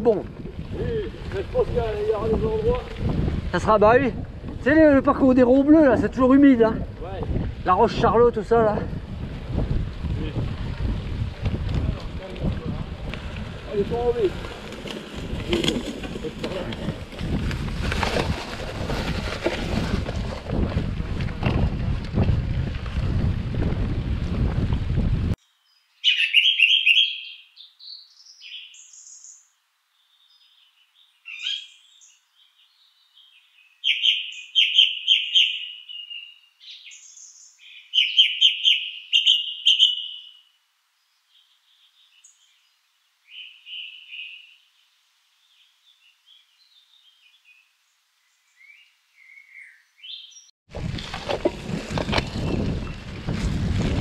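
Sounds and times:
soft bird chirps: 25.4 - 50.5
songbird singing: 25.4 - 51.2.

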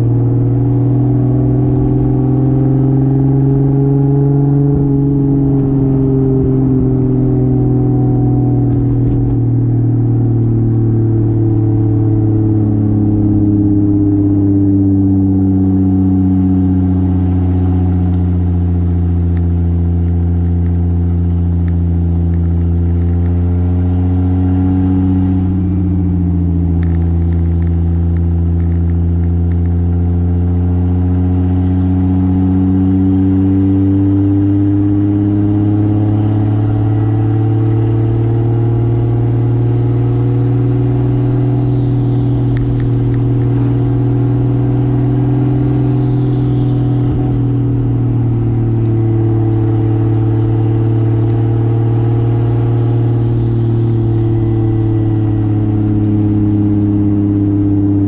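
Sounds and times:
car engine pulling: 15.0 - 31.2, 32.8 - 58.0.

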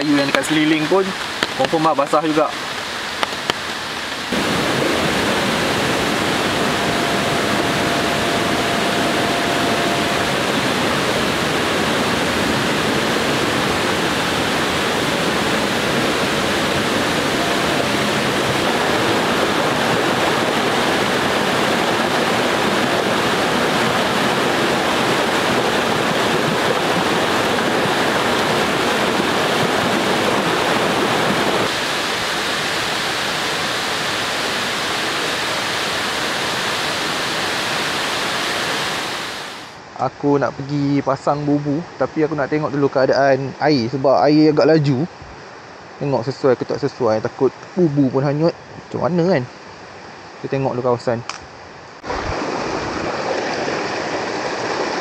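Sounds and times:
river rushing: 0.0 - 40.0, 51.4 - 55.0.

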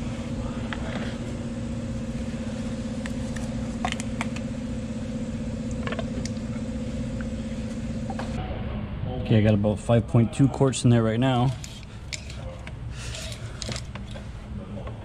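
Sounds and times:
machine humming: 0.0 - 15.0.

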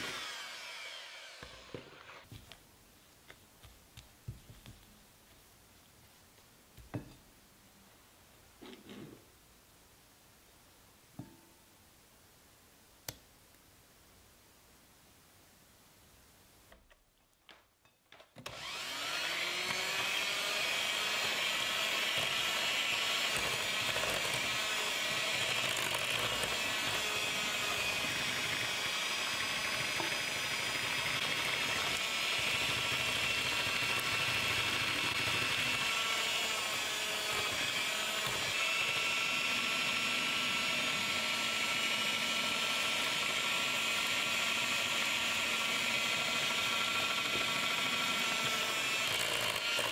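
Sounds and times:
hand mixer motor whine: 0.0 - 2.3, 18.4 - 49.9.

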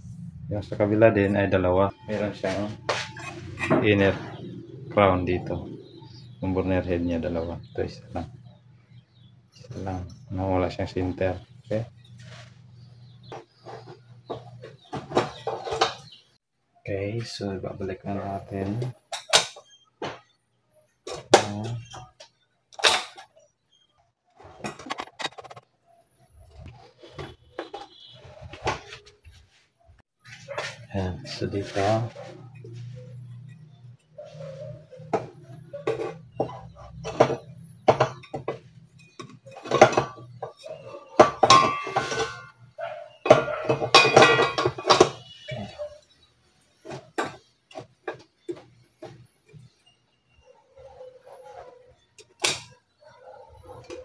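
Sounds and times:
metal stove parts clunking: 19.1 - 20.3, 21.1 - 23.4, 35.1 - 42.5, 43.2 - 45.8, 52.2 - 52.8.

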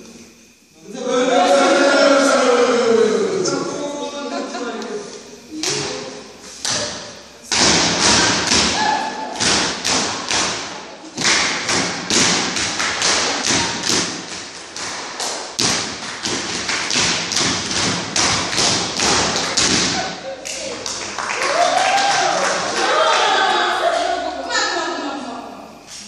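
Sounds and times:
rhythmic percussion beats: 5.6 - 21.2.

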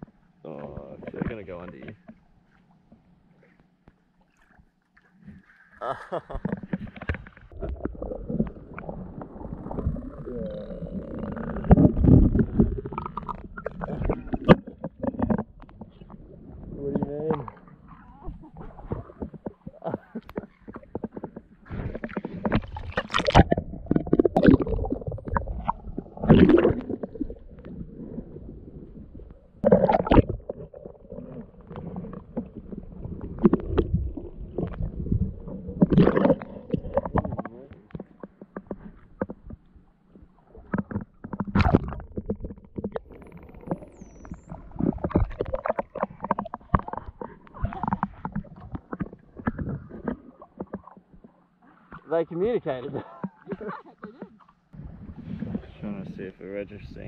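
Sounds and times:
muffled underwater rushing and bubbling: 6.2 - 57.0
faint whistle-like glides: 43.9 - 44.6.

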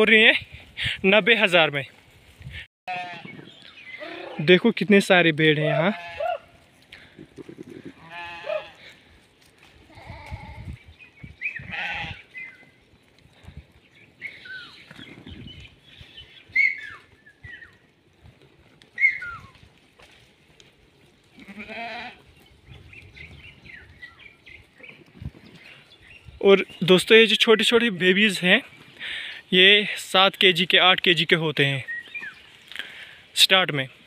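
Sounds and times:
sheep and lambs bleating: 2.9 - 4.4, 5.7 - 6.4, 7.6 - 9.0, 9.9 - 10.8, 11.5 - 12.5, 21.3 - 22.3.

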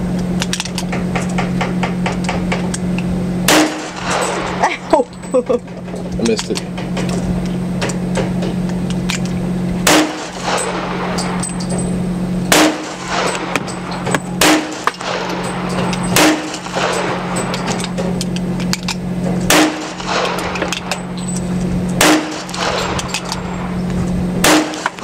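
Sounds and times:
steady low hum: 0.0 - 25.0
shotgun blasts with echo: 3.5 - 4.8, 9.8 - 11.4, 12.5 - 18.0, 19.5 - 21.2, 22.0 - 23.8, 24.4 - 25.0.

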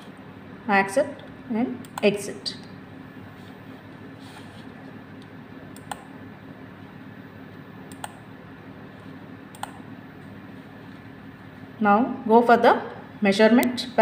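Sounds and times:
low room hum: 0.0 - 14.0
computer mouse clicks: 5.7 - 6.1, 7.9 - 8.2, 9.5 - 9.8.

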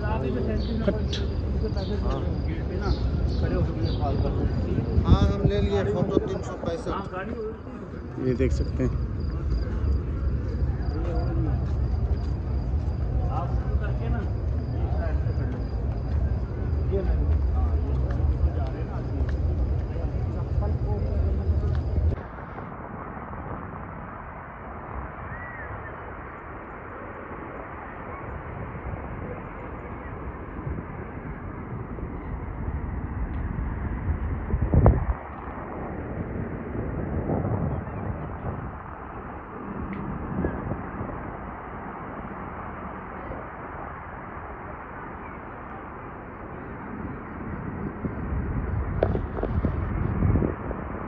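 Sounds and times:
low rumble and hiss: 0.0 - 51.0
low rumble: 7.9 - 26.7
faint rising and falling whistle: 25.2 - 27.0.

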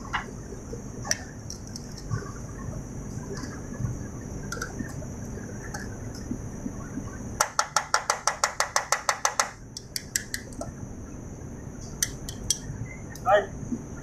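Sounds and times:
faint high whine: 10.6 - 14.0.

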